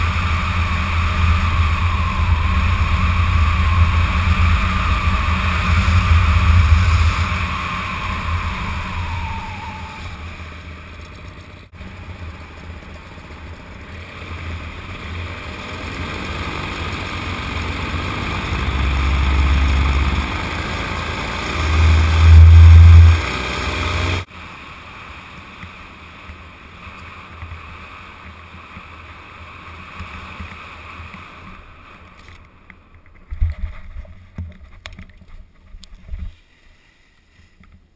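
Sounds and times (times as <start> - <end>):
wind rushing: 0.0 - 11.1, 17.9 - 24.0
paramotor engine and propeller: 0.0 - 36.3.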